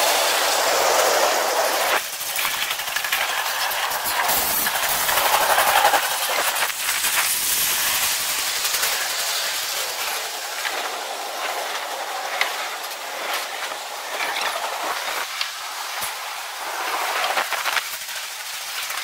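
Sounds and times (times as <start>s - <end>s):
train wheels on rails: 0.0s - 19.0s.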